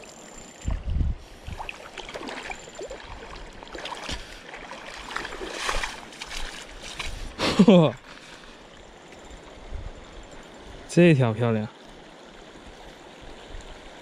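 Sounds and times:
water splashing: 0.7s - 9.2s.

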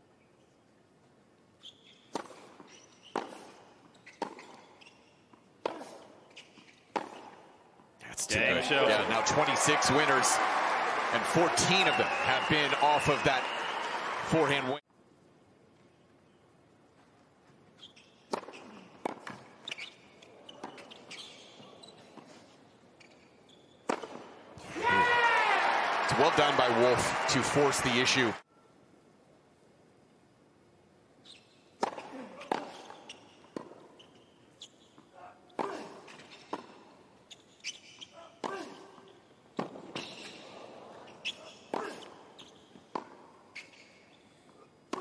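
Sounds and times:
tennis shoes squeaking on court: 1.5s - 7.7s, 17.1s - 24.4s, 31.2s - 45.0s
tennis ball bouncing and hit: 2.1s - 4.9s, 5.6s - 7.5s, 18.3s - 19.9s, 23.9s - 24.3s, 31.8s - 33.9s, 39.6s - 40.3s, 42.9s - 43.4s.

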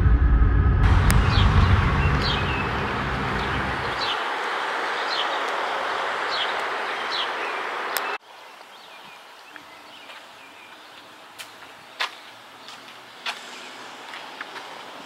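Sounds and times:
background noise rush: 0.8s - 15.0s
bird chirping: 1.1s - 13.2s.

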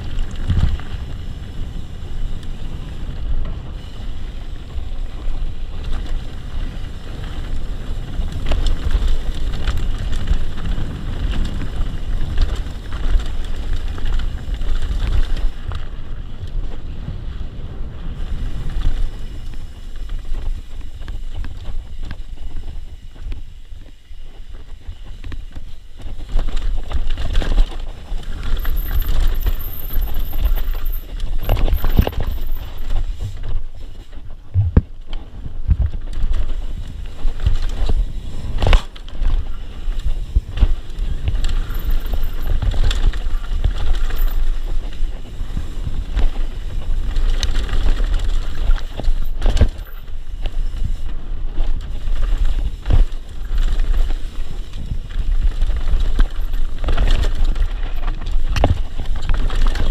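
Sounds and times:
tyre noise on dirt: 0.0s - 59.9s
wind rumbling on microphone: 0.0s - 59.9s
bike knocks and rattles: 18.2s - 59.9s.

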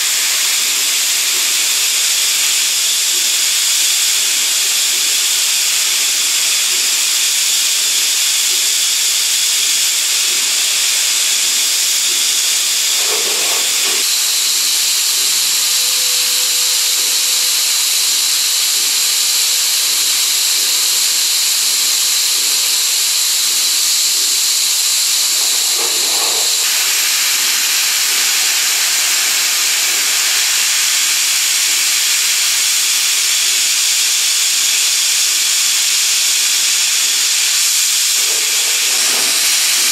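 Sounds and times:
coolant spraying hiss: 0.0s - 39.9s
high machine whines: 9.0s - 18.5s, 24.1s - 28.4s, 35.7s - 39.9s.

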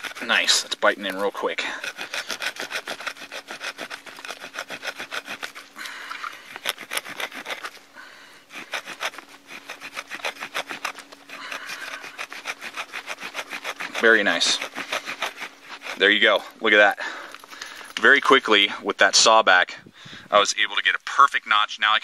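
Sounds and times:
saw rasping through wood: 0.0s - 7.8s, 8.4s - 16.8s.

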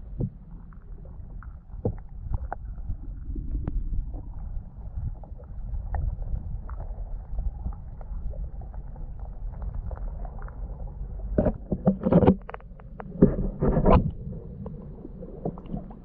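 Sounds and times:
muffled underwater rumble: 0.0s - 16.0s
small underwater clicks: 5.7s - 16.0s.

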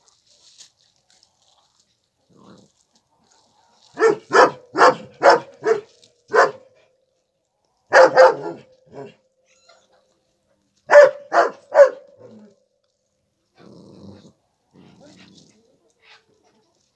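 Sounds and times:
dog barking: 3.9s - 6.7s, 7.9s - 9.2s, 10.9s - 12.3s.

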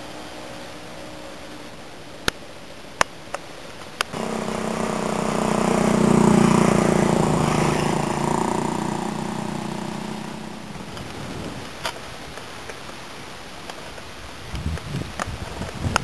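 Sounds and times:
vehicle engine passing by: 4.1s - 11.6s.

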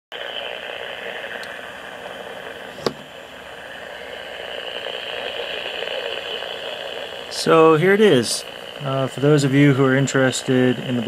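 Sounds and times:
radio static hiss: 0.1s - 11.0s
sharp click: 2.8s - 3.1s.

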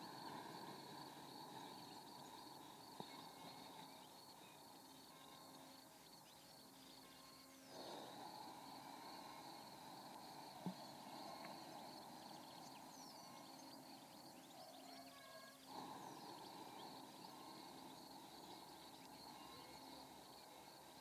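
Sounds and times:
high insect-like hum: 0.0s - 21.0s
faint bird chirps: 10.9s - 21.0s.

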